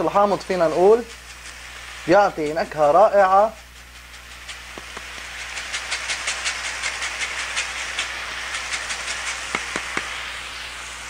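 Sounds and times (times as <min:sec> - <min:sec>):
filling sizzling in pan: 0:00.0 - 0:11.0
lemon rind grating: 0:03.4 - 0:10.0.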